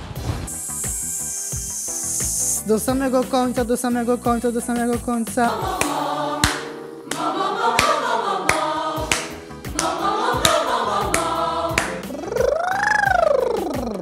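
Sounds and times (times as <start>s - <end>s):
piano accompaniment: 0.5s - 12.4s
vocal ensemble singing: 5.3s - 12.3s.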